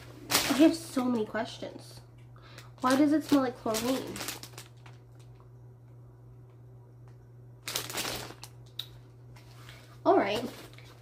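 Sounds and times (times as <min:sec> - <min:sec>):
plastic bag crinkling: 0:00.0 - 0:01.6, 0:02.5 - 0:05.5, 0:07.6 - 0:08.8, 0:10.2 - 0:11.0
steady low hum: 0:00.0 - 0:11.0.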